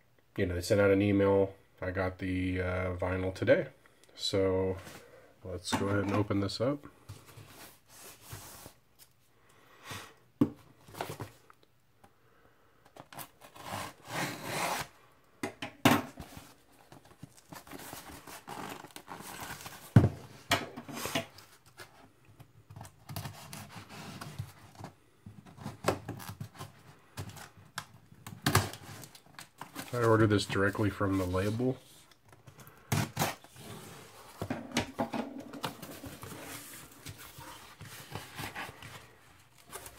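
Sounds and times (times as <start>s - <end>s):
cardboard tearing and scraping: 13.1s - 14.9s, 17.3s - 20.0s, 32.9s - 34.4s.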